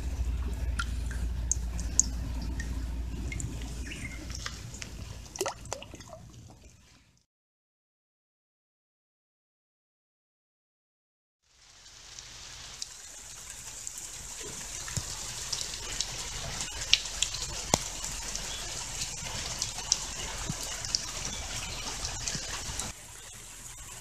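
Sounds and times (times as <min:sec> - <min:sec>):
water falling and trickling: 0:00.0 - 0:07.2, 0:11.5 - 0:24.0.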